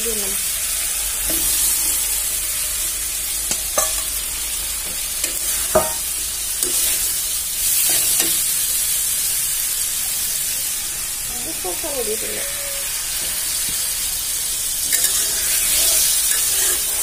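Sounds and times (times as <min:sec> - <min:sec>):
vegetables sizzling in a pan: 0:00.0 - 0:17.0
metal spatula stirring: 0:03.5 - 0:04.1, 0:14.9 - 0:17.0.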